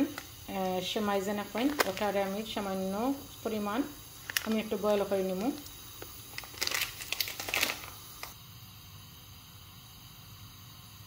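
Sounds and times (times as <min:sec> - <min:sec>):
plastic packet crinkling: 0:00.0 - 0:02.4, 0:04.2 - 0:08.4
faint background hiss: 0:00.0 - 0:11.0.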